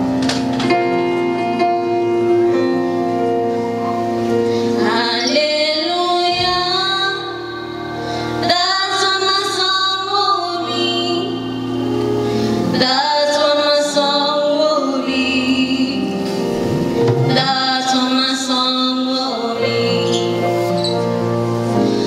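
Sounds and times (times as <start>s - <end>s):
sustained instrumental chords: 0.0s - 22.0s
woman singing: 4.6s - 16.5s, 17.2s - 21.3s.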